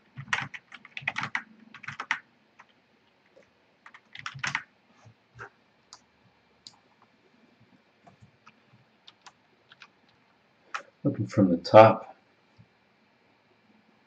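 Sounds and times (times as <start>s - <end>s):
typing on computer keyboard: 0.1s - 2.8s, 3.8s - 4.7s, 8.1s - 10.9s.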